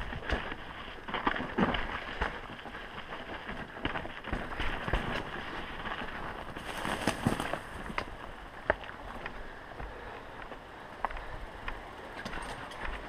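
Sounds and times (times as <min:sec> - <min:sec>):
bike rattle and tyre noise: 0:00.0 - 0:13.0
wheels knocking on rocks: 0:00.0 - 0:13.0.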